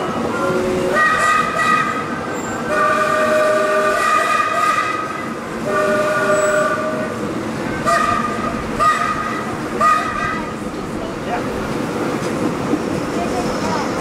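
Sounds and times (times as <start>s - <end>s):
moving train rumble: 0.0s - 14.0s
steam locomotive whistle blasts: 0.4s - 7.1s, 7.8s - 10.5s.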